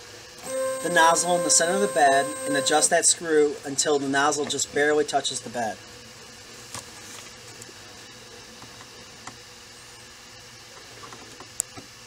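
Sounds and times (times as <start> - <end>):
cooling fan whirring: 0.1 - 6.6
faint steady hum: 0.4 - 3.0.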